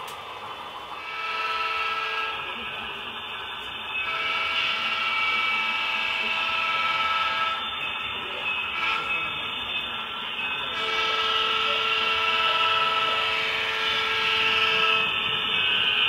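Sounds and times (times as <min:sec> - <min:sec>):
model train horn from small speaker: 0:01.0 - 0:03.1, 0:03.9 - 0:07.8, 0:08.6 - 0:09.5, 0:10.7 - 0:16.0.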